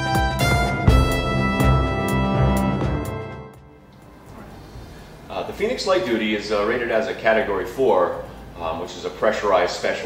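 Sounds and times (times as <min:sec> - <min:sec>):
theme music: 0:00.0 - 0:03.9
faint low background noise: 0:03.7 - 0:10.0.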